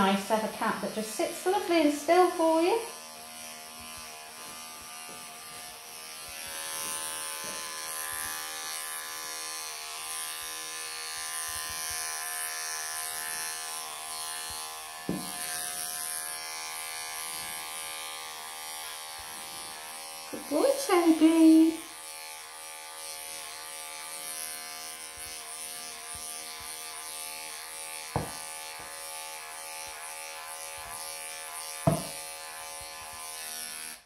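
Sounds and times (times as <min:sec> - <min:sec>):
pet clippers humming: 0:00.0 - 0:34.0
brief knock: 0:15.1 - 0:15.4.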